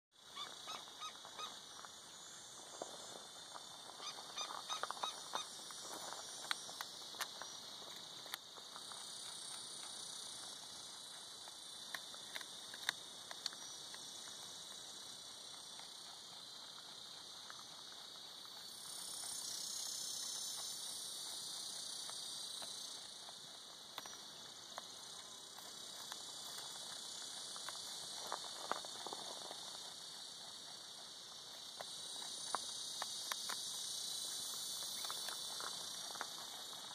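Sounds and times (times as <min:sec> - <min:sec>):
insects buzzing: 0:00.2 - 0:36.9
rabbit crunching on cactus: 0:04.1 - 0:36.9.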